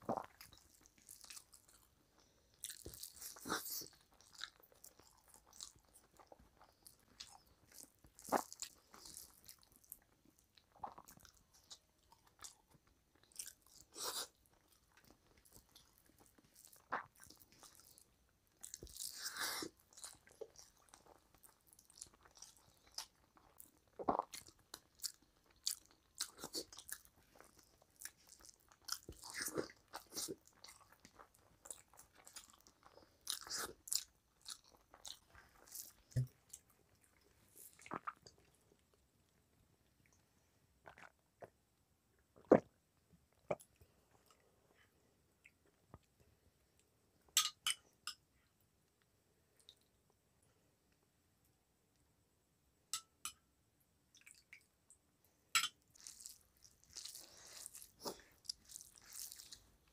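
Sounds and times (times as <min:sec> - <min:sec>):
person chewing with wet smacks: 0:00.0 - 0:38.9, 0:40.8 - 0:41.6, 0:42.4 - 0:44.4, 0:54.1 - 0:55.0, 0:55.6 - 0:59.9.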